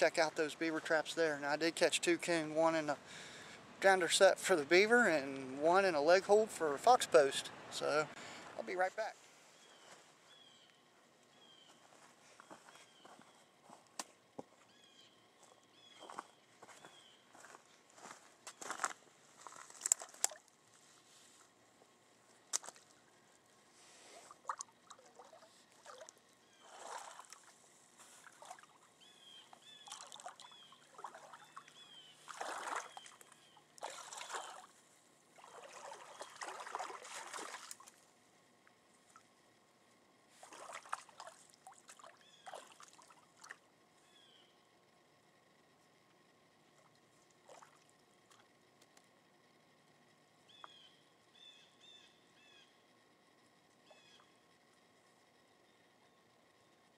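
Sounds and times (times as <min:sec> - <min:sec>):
boots sloshing in water: 0:22.5 - 0:23.0, 0:24.2 - 0:28.8, 0:29.5 - 0:34.8, 0:35.4 - 0:38.0, 0:40.3 - 0:43.6, 0:47.4 - 0:48.4.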